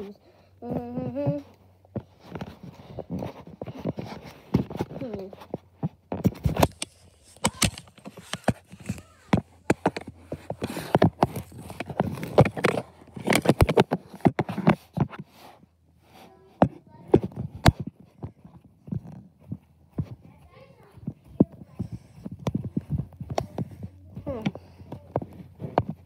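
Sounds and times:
phone handling knocks and rustling: 5.9s - 15.2s.

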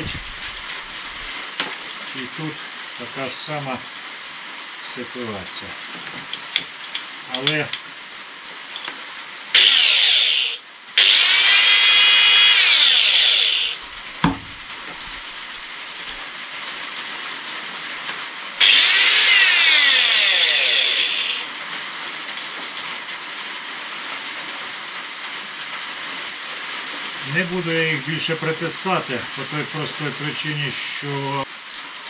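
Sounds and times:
angle grinder spinning up and down: 0.0s - 1.3s, 9.6s - 15.4s, 18.6s - 21.5s
sharp knock: 14.2s - 14.6s.

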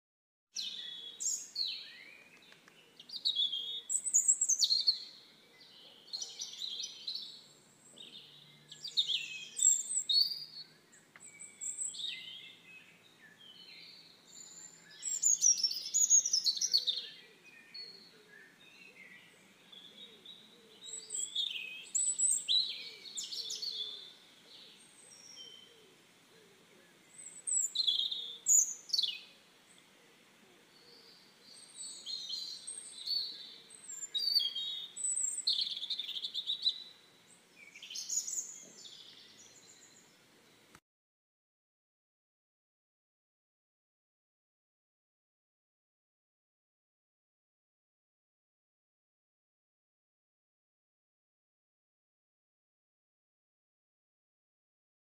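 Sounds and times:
songbirds singing: 0.6s - 40.8s.

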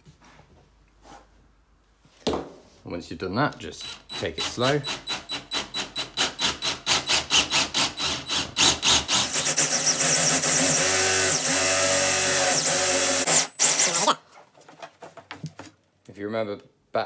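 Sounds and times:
cordless drill boring through wood: 3.8s - 14.2s.

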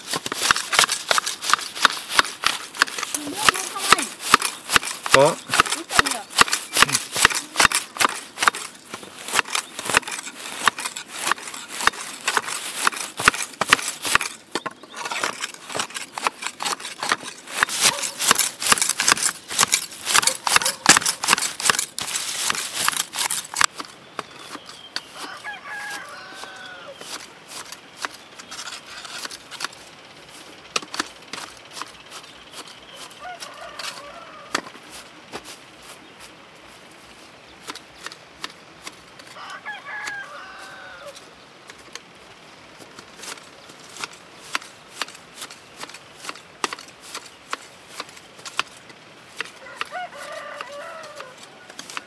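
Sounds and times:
grass shears snipping: 0.0s - 52.0s
rooster crowing: 25.2s - 27.0s, 33.0s - 34.7s, 39.3s - 41.3s, 49.6s - 52.0s.

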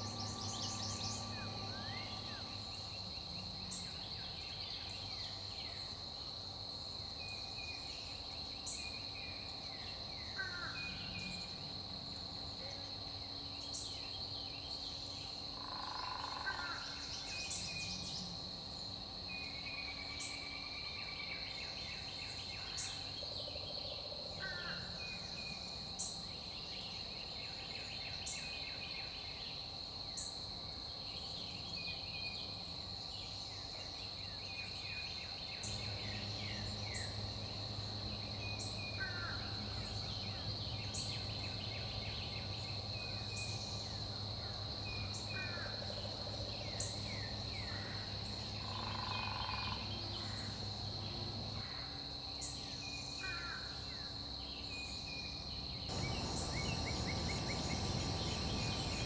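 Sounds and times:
low steady hum: 0.0s - 5.4s, 55.9s - 59.0s
crickets chirping: 0.0s - 59.0s
high insect drone: 0.0s - 59.0s.

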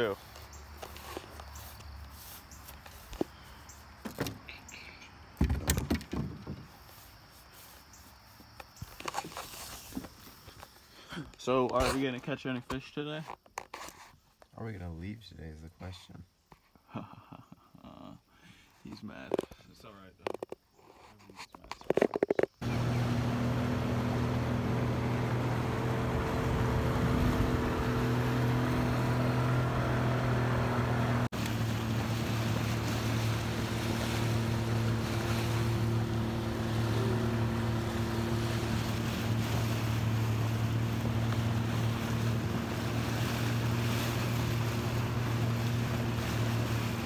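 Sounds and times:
motorboat engine droning: 22.6s - 47.0s.

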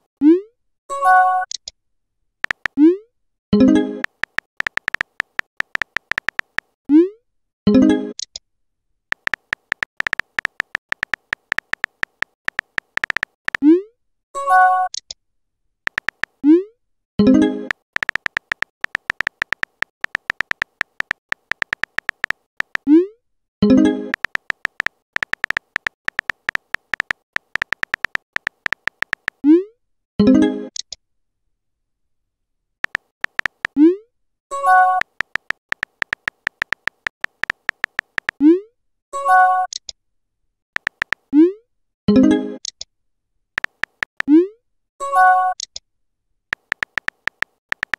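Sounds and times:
phone keyboard tap clicks: 2.4s - 2.8s, 4.0s - 6.7s, 9.1s - 13.6s, 15.9s - 16.4s, 17.7s - 22.9s, 24.1s - 29.4s, 32.8s - 33.8s, 34.9s - 38.4s, 40.8s - 41.3s, 43.6s - 44.3s, 46.5s - 47.9s.

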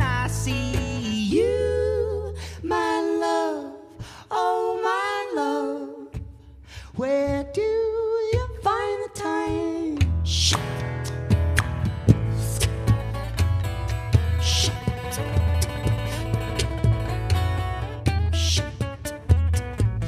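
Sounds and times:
low bass notes: 0.0s - 2.8s, 8.4s - 20.0s
woman singing slow melody: 0.9s - 6.2s.

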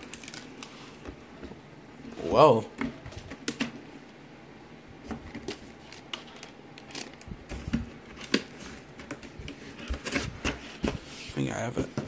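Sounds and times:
cardboard and plastic packaging handled: 0.0s - 1.6s, 5.0s - 12.0s.

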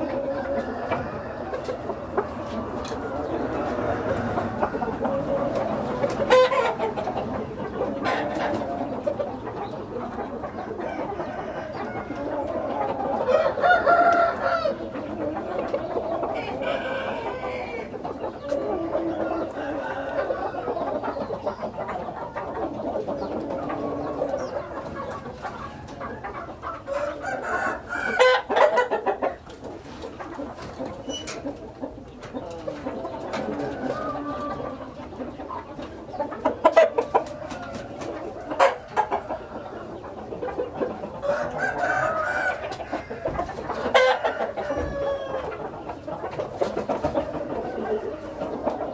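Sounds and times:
roosters crowing: 0.0s - 30.0s, 32.2s - 48.9s
chickens clucking: 0.0s - 48.9s.

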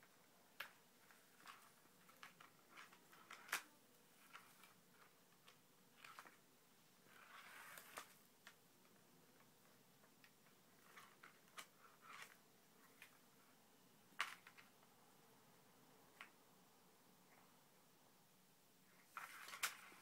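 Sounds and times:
cats pawing plastic ball-track toy: 0.6s - 6.4s.

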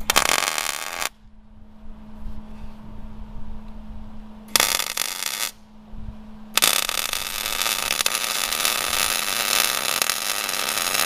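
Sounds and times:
welding arc crackle: 0.0s - 1.1s, 4.5s - 5.6s, 6.6s - 11.0s
low rumble: 0.0s - 9.2s
steady low hum: 0.0s - 11.0s.

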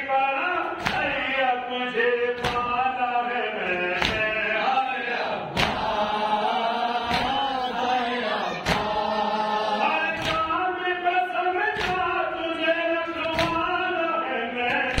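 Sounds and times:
man chanting a lament: 0.0s - 15.0s
group of voices chanting: 3.6s - 10.6s.

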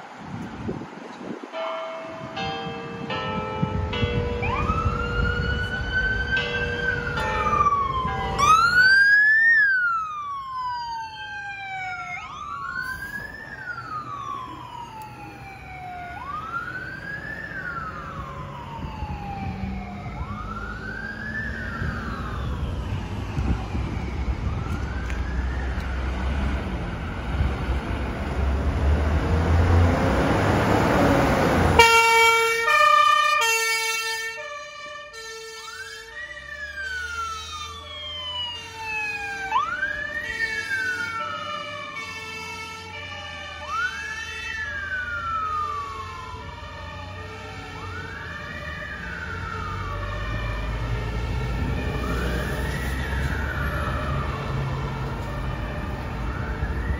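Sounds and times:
wailing siren: 3.6s - 56.9s
two-tone hi-lo siren: 3.7s - 27.6s, 31.7s - 56.9s
heavy engine rumbling past: 12.3s - 31.8s.

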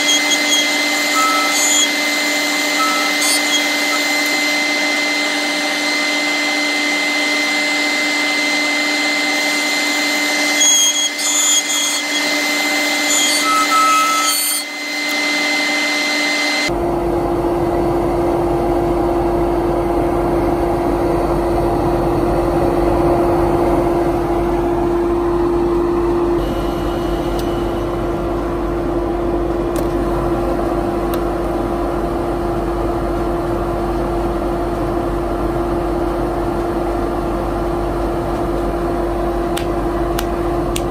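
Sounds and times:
sandpaper rubbing spinning wood: 0.0s - 4.5s, 9.4s - 14.8s
wood lathe running: 0.0s - 16.7s
dust extractor: 0.0s - 16.8s, 24.2s - 29.0s.

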